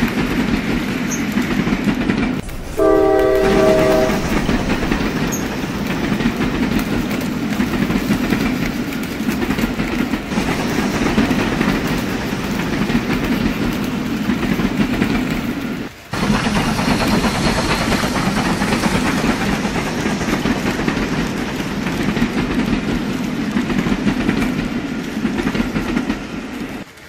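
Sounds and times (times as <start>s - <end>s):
wheels clicking over rail joints: 0.0s - 27.0s.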